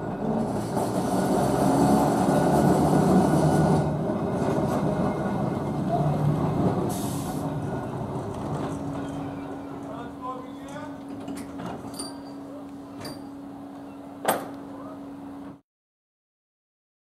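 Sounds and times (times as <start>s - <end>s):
tram rumbling along rails: 0.0s - 15.6s
short hiss: 6.9s - 7.4s.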